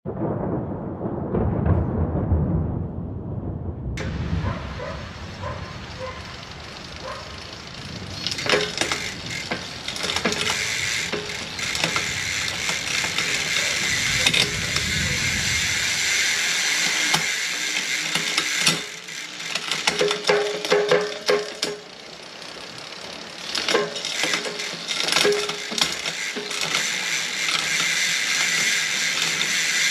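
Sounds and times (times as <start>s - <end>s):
bicycle hub freewheeling buzz: 4.0s - 29.9s
hub clicks: 6.0s - 16.2s.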